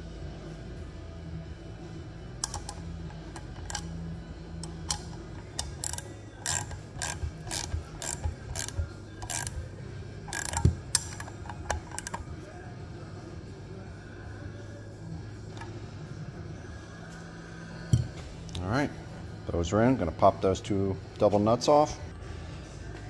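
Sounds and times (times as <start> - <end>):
socket ratchet clicking: 2.4 - 12.3.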